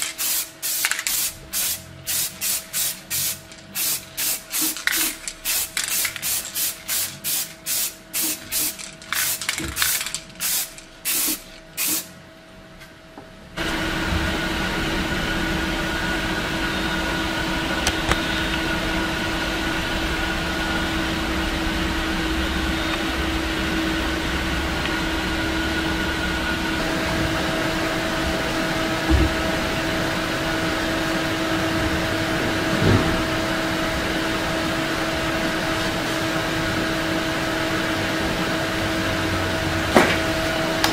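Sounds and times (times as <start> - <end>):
spray can hissing: 0.0 - 12.1
machine-like hum: 0.0 - 40.9.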